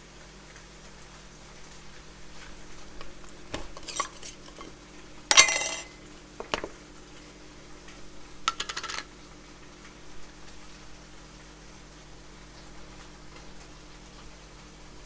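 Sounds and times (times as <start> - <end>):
lid scraping clatter on stone: 3.6 - 6.6.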